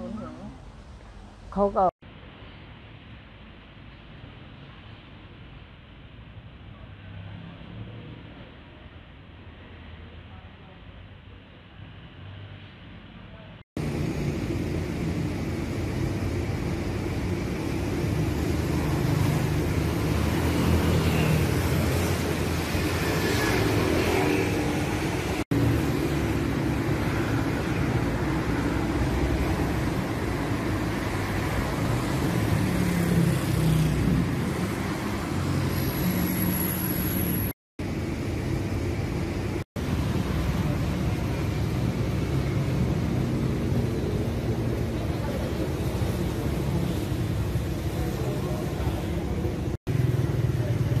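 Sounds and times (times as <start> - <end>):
cars passing: 11.7 - 51.0.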